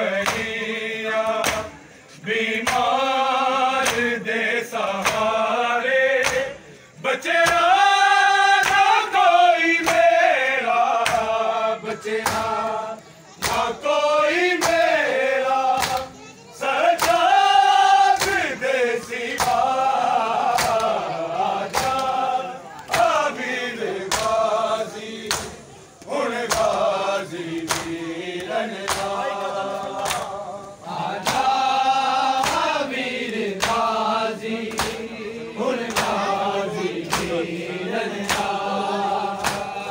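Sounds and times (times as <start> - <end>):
men chanting a lament: 0.0 - 39.9.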